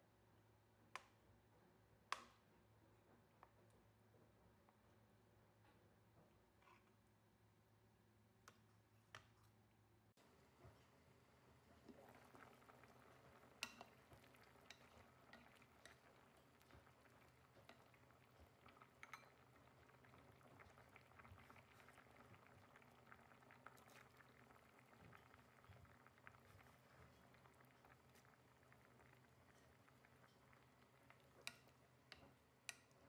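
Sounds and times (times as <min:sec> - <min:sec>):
stew bubbling and popping: 0:10.2 - 0:33.0.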